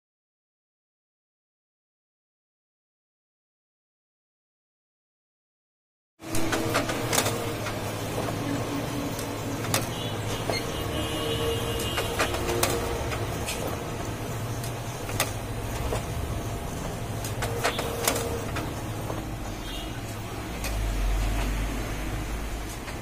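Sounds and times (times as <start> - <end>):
paper feed whines: 6.2 - 23.0
photocopier motor hum: 6.2 - 23.0
photocopier clicks: 6.3 - 10.7, 11.7 - 19.3.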